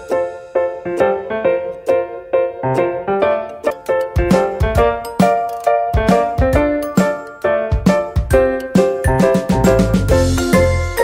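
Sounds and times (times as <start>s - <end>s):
keyboard melody: 0.0s - 11.0s.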